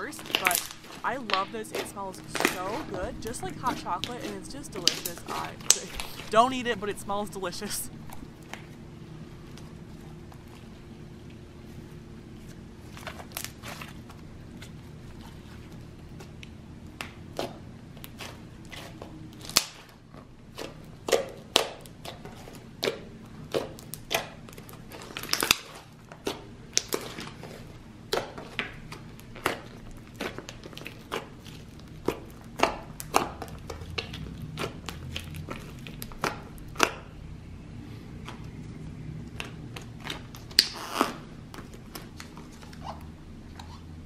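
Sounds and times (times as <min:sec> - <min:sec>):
slime being stretched and pressed: 0:17.0 - 0:37.0, 0:39.3 - 0:43.0.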